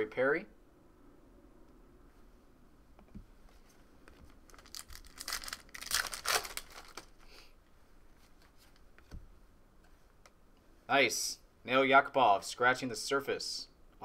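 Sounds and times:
plastic wrapping crinkling: 0:04.1 - 0:07.3.

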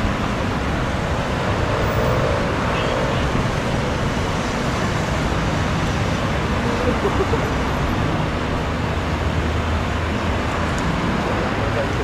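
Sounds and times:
cars passing on highway: 0:00.0 - 0:12.0.

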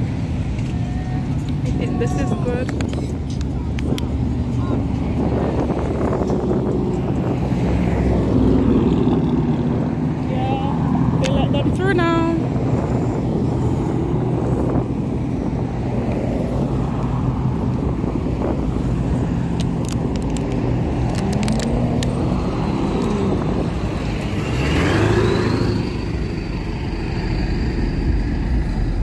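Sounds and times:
street traffic passing: 0:00.0 - 0:29.0
engine accelerating: 0:20.6 - 0:29.0.

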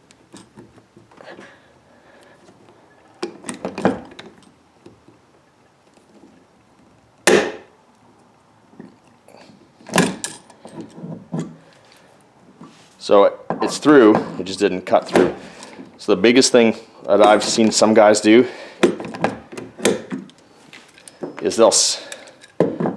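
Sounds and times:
rivet tool handles clicking: 0:18.8 - 0:22.6.

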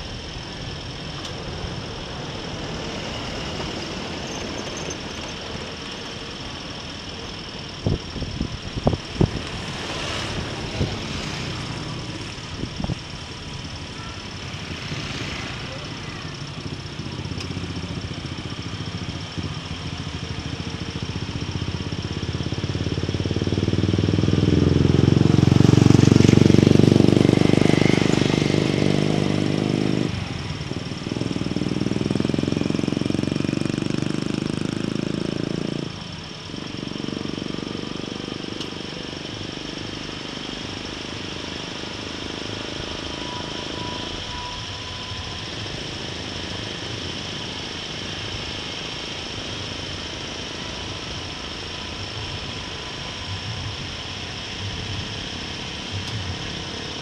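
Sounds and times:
road and wind noise: 0:00.0 - 0:57.0
vehicle engine running: 0:00.0 - 0:57.0.

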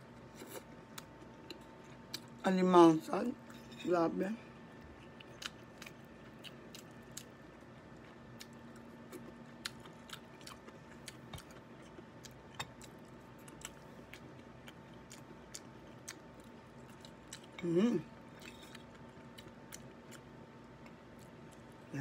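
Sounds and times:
wet chewing sounds: 0:04.8 - 0:07.4, 0:08.0 - 0:17.6.

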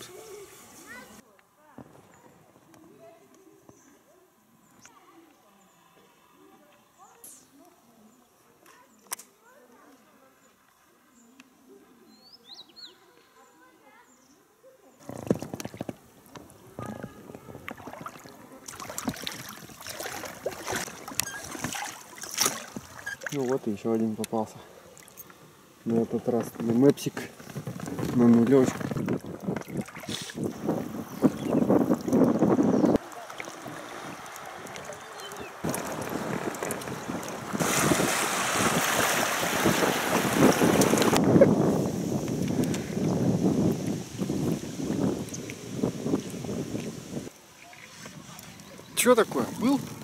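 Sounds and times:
water splashing around boat: 0:15.0 - 0:50.0
wind buffeting microphone: 0:15.1 - 0:21.8, 0:27.2 - 0:47.3
sharp splashes and clicks: 0:17.6 - 0:24.4, 0:26.4 - 0:30.5, 0:32.0 - 0:41.3, 0:42.2 - 0:42.8.

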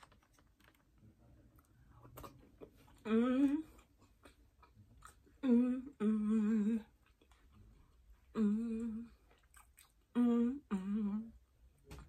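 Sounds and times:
woman humming while eating: 0:03.0 - 0:03.8, 0:05.4 - 0:07.0, 0:08.3 - 0:09.2, 0:10.1 - 0:11.4.

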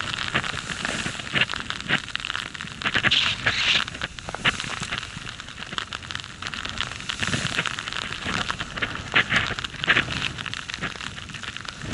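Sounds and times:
powder snow spraying: 0:02.9 - 0:04.0.

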